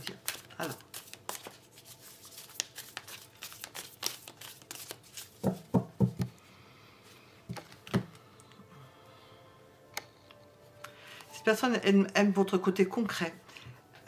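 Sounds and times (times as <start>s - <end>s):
cards being shuffled: 0.0s - 6.3s
deck knocking on table: 5.4s - 6.3s.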